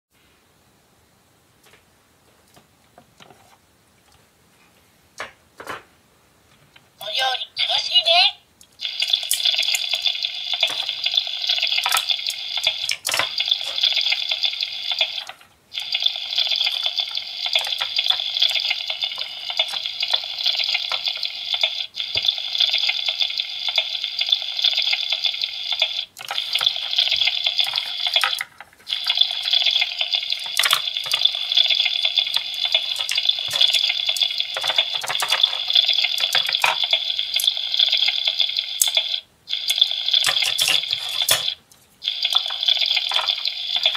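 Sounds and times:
electronic sizzling hiss from toy speaker: 0:07.0 - 0:43.9
plastic toy clicks: 0:25.8 - 0:41.6.

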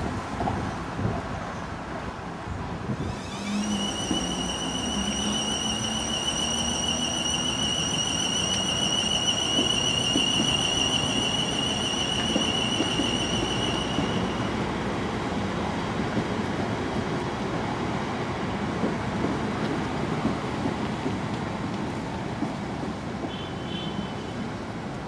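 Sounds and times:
rumble of moving train: 0:00.0 - 0:25.0
high-pitched electric train whine: 0:03.0 - 0:14.9.

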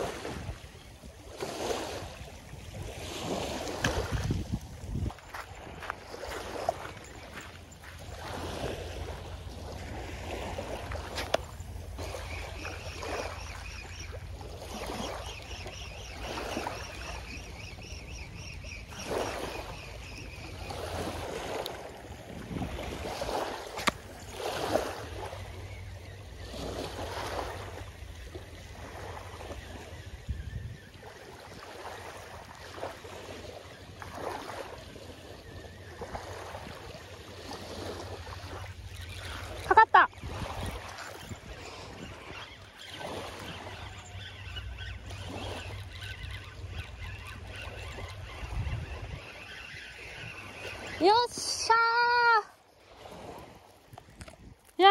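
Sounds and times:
wind rumbling on microphone: 0:00.0 - 0:12.4, 0:19.7 - 0:25.6, 0:26.7 - 0:31.2, 0:39.9 - 0:42.4, 0:47.9 - 0:50.5
small waves washing on sand: 0:00.0 - 0:30.3, 0:30.9 - 0:46.2, 0:47.0 - 0:54.9.

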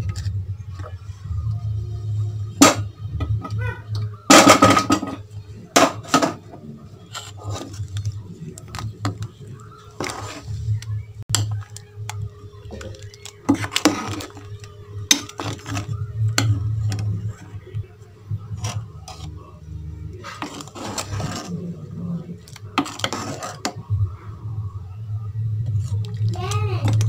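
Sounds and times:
steady low hum: 0:00.0 - 0:27.0
ladle stirring liquid in pot: 0:04.4 - 0:19.4, 0:20.0 - 0:23.9, 0:25.6 - 0:27.0
metal scraping on metal: 0:09.9 - 0:10.8, 0:20.1 - 0:23.8.

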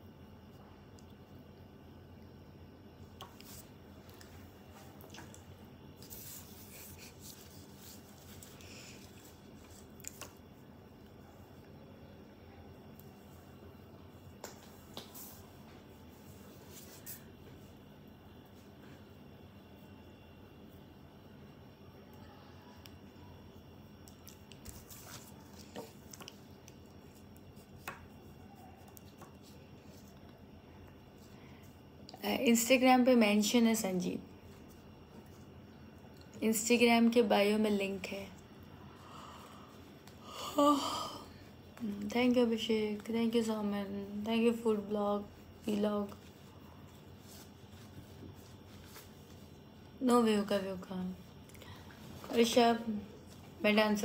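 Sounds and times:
low steady hum: 0:00.0 - 0:54.0
soft rustles: 0:03.2 - 0:10.6, 0:24.3 - 0:30.3, 0:45.1 - 0:49.8.

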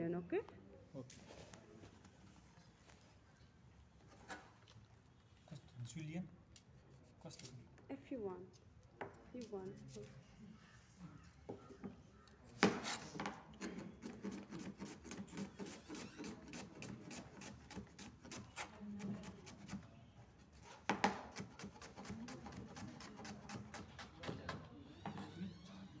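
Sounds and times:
knife chopping on cutting board: 0:12.6 - 0:18.4.

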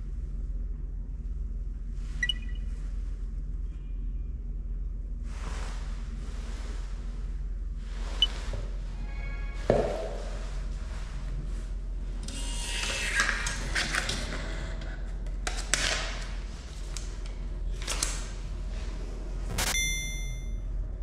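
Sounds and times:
short electronic chime: 0:19.6 - 0:20.6.

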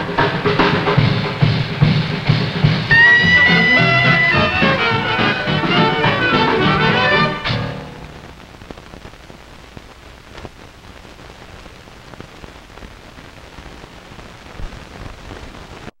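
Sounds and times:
film soundtrack hiss and crackle: 0:00.0 - 0:16.0
small pops and clicks: 0:08.0 - 0:12.9.

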